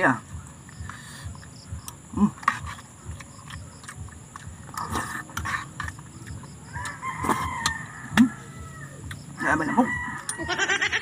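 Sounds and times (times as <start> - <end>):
high insect drone: 0.0 - 11.0
chewing: 0.4 - 10.4
chicken calling: 6.8 - 11.0.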